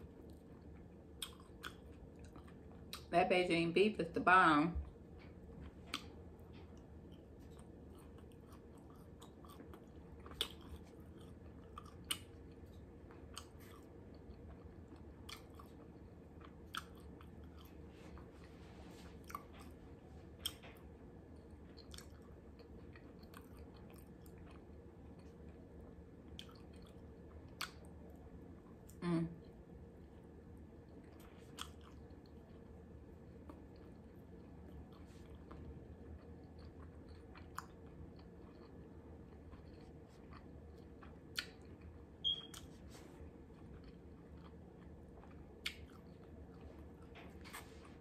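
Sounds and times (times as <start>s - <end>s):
person chewing: 0.0s - 3.1s, 4.8s - 29.0s, 30.8s - 48.0s
low room hum: 0.0s - 48.0s
sharp mouth clicks and smacks: 41.3s - 41.7s, 45.6s - 46.0s.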